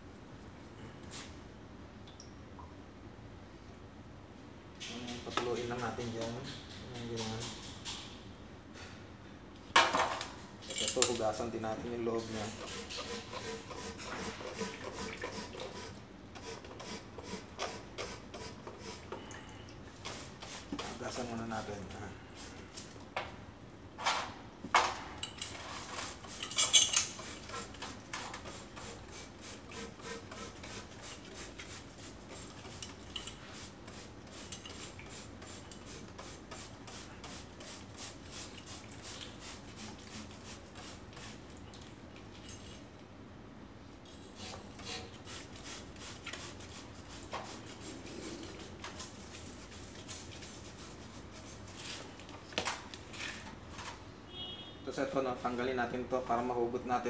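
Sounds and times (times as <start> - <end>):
metal clinks and rubbing: 26.3 - 27.2.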